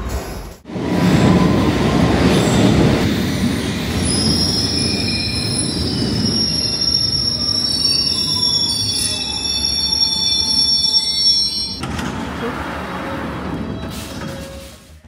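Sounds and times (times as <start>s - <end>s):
train rumbling: 0.0s - 15.0s
high-pitched metallic squeals: 4.0s - 11.8s.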